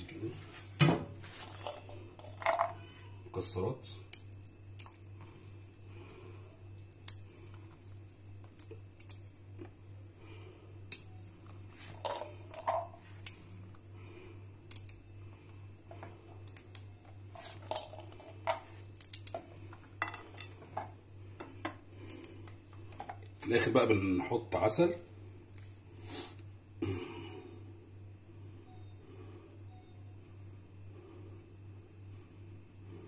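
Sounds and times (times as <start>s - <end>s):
low steady hum: 0.0s - 33.0s
nut pieces dropping onto plate: 1.5s - 2.8s, 17.4s - 21.8s.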